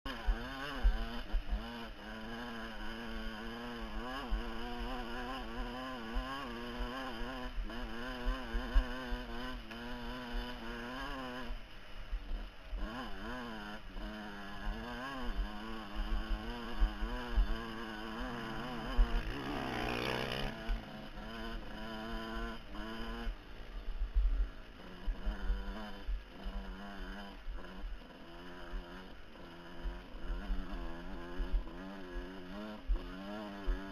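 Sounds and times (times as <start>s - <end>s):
dirt bike engine revving: 0.1s - 33.9s.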